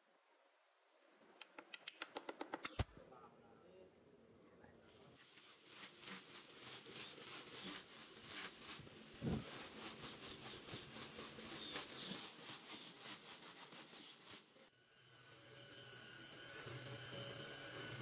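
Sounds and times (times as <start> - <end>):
sanding disc scratching wood: 5.2 - 14.7.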